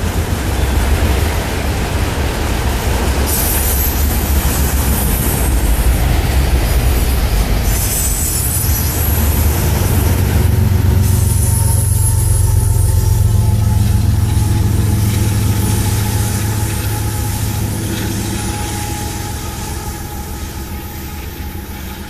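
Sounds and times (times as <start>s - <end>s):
diesel locomotive engine: 0.0s - 22.0s
steel wheels rumbling on rail: 0.0s - 22.0s
high-pitched wheel squeal: 6.8s - 22.0s.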